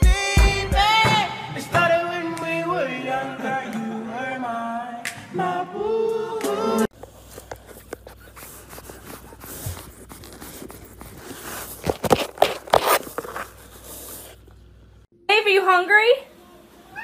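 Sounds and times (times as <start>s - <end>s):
song with sung vocals: 0.0s - 6.9s.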